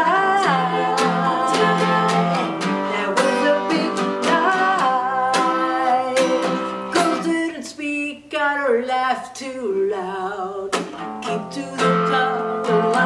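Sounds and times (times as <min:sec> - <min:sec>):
voices singing together: 0:00.0 - 0:07.4, 0:11.3 - 0:13.0
acoustic guitar strumming: 0:00.0 - 0:07.6, 0:10.0 - 0:13.0.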